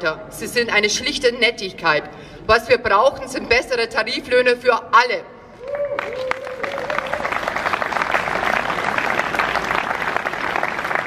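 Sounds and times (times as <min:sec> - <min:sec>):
crowd applauding: 0:05.7 - 0:11.0.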